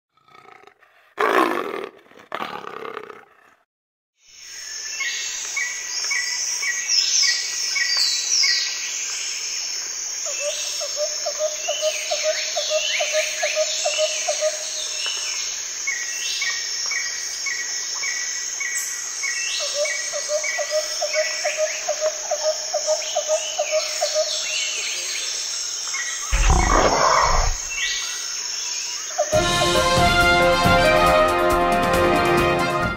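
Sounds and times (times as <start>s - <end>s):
big cat growling: 0.1s - 3.6s, 26.3s - 27.8s
birds chirping: 26.2s - 28.0s.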